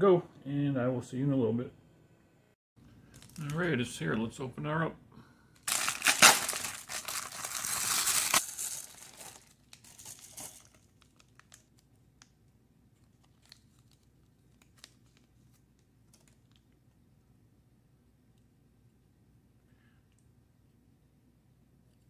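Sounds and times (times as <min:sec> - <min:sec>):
plastic mailer bag crinkling and tearing: 0:03.1 - 0:03.7, 0:05.6 - 0:11.8, 0:13.0 - 0:16.6
plastic packet crinkles and clicks: 0:03.1 - 0:03.7, 0:05.6 - 0:16.8.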